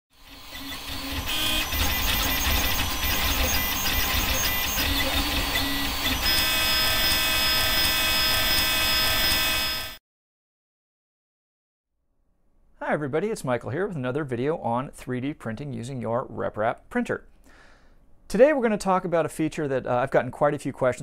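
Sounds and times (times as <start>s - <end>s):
stepper motors singing tones: 0.2s - 10.0s.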